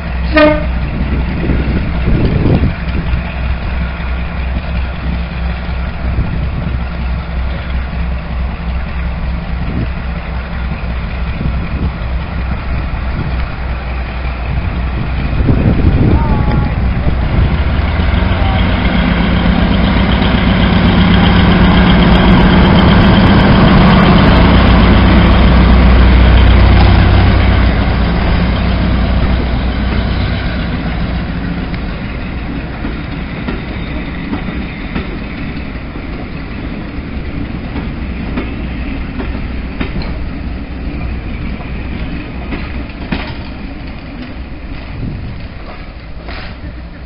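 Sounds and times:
diesel locomotive engines running: 0.0 - 47.0
train wheels rolling: 0.0 - 47.0
wheels clicking over rail joints: 17.3 - 47.0.

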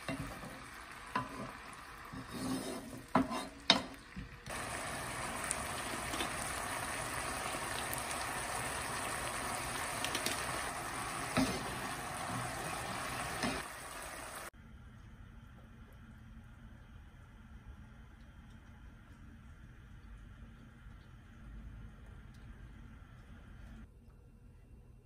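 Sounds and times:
sauce bubbling in a pan: 0.0 - 14.6.

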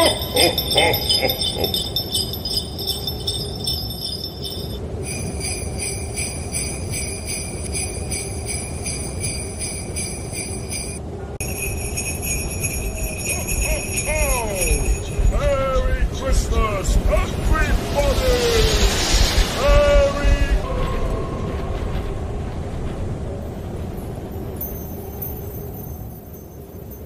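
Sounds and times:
sleigh bells jingling: 0.0 - 20.0, 23.9 - 27.0
low rumble: 0.0 - 25.2.

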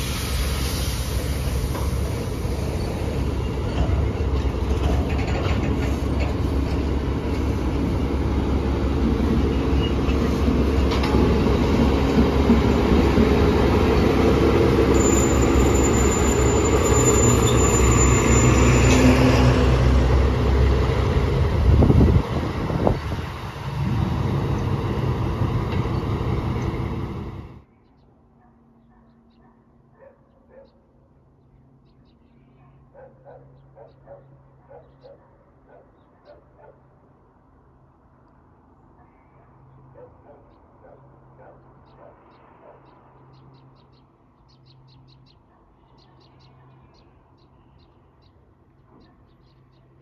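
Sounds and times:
diesel locomotive engine drone: 0.0 - 27.7
thin high squeal: 14.9 - 19.2.

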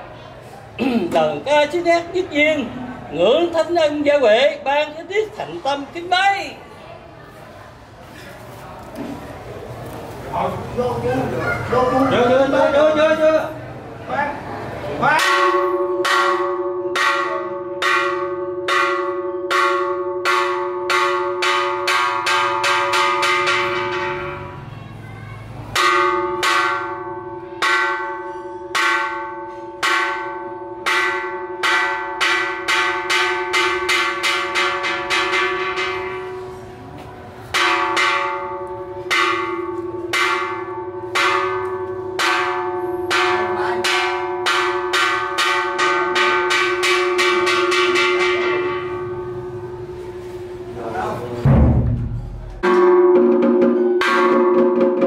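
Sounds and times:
temple bell ringing: 15.2 - 25.1, 25.7 - 51.5, 52.1 - 55.0.

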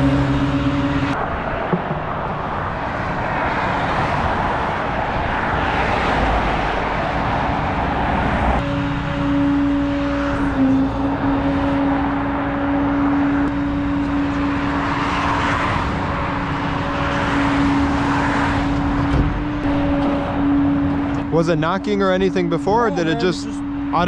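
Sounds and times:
road noise: 0.0 - 24.0
vehicle engine humming: 0.0 - 24.0.

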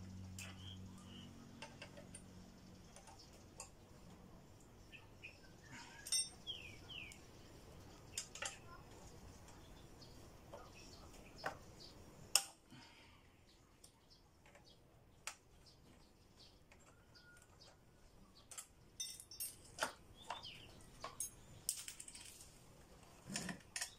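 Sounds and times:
metal tools clinking: 5.8 - 6.6, 18.5 - 20.4, 21.0 - 22.5
faint bird chirps: 15.6 - 18.5.

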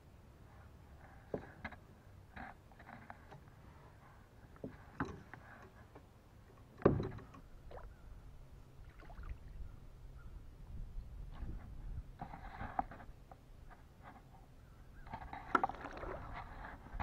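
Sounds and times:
water splashing from paddling: 15.4 - 16.6.

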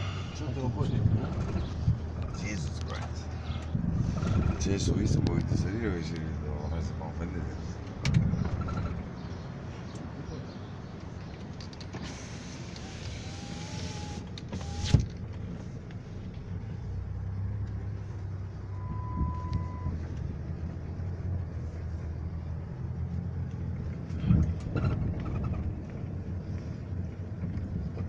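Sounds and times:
engine and road rumble: 0.0 - 28.0
power window motor whining: 12.0 - 15.1
short steady beep: 18.7 - 20.0.

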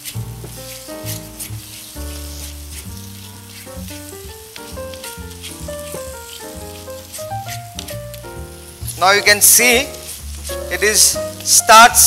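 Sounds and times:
background music with bass line: 0.0 - 12.0
thick mixture sizzling: 0.0 - 12.0
wooden spatula scraping metal pan: 0.0 - 12.0.

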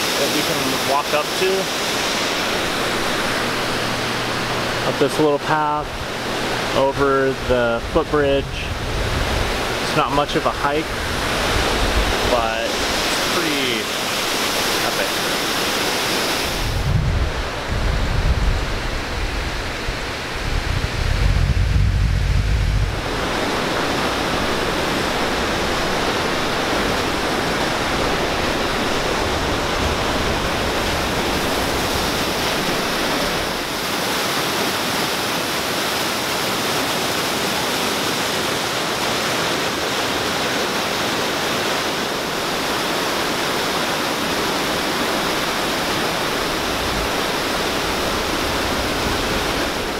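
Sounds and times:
water roaring over rocks: 0.0 - 49.9
low rumble buffeting microphone: 0.2 - 15.0, 16.4 - 33.8.

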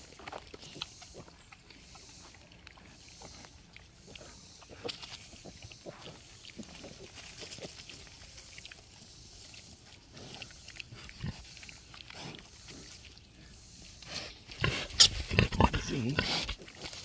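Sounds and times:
piglets grunting: 10.1 - 16.9.

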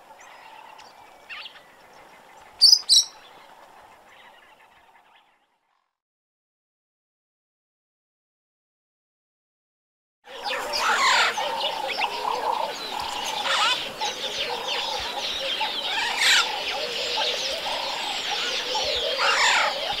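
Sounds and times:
many birds chirping and calling: 0.0 - 5.9, 10.3 - 20.0.

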